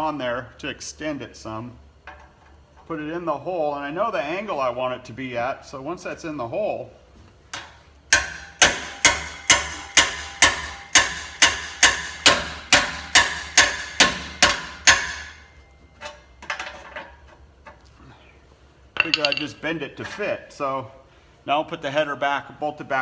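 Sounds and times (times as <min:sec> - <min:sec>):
hammer striking steel pipe: 0:08.1 - 0:15.6, 0:19.0 - 0:19.5
faint clinks: 0:19.0 - 0:19.6.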